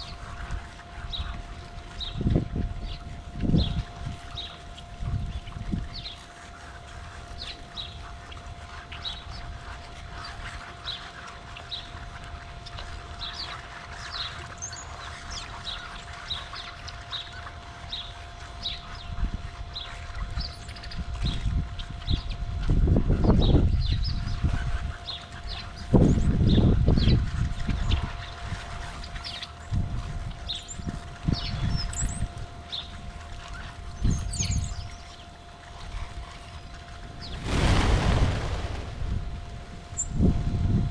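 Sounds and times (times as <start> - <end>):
birds chattering: 0.0 - 22.5, 30.4 - 40.3
songbirds chirping: 0.0 - 22.6
faint hum: 0.0 - 40.9
wind rumble on microphone: 0.0 - 40.9
high falling bird calls: 35.9 - 40.3
low rumble: 37.2 - 40.9.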